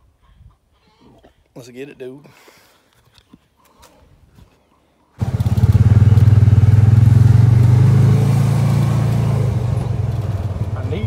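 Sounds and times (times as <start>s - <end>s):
vehicle engine running: 5.2s - 11.0s.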